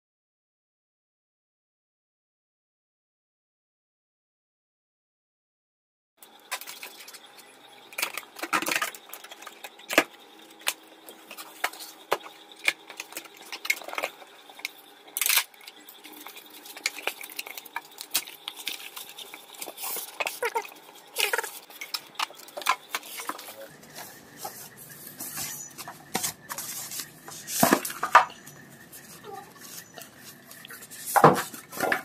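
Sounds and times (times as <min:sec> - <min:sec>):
packaging rustling: 0:07.9 - 0:32.0.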